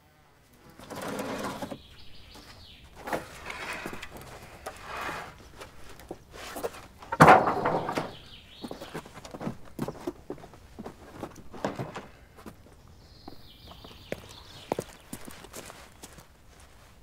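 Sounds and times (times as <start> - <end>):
birds chirping: 0.6 - 16.2
wooden plank clattering: 0.8 - 1.9, 3.0 - 12.3
footsteps on corrugated roof: 0.8 - 17.0.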